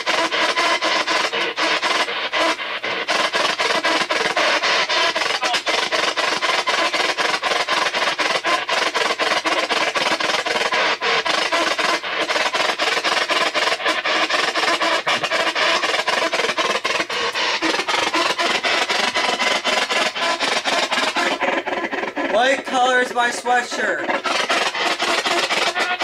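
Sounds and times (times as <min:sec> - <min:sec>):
radio static in short bursts: 0:04.3 - 0:06.0, 0:22.3 - 0:24.2.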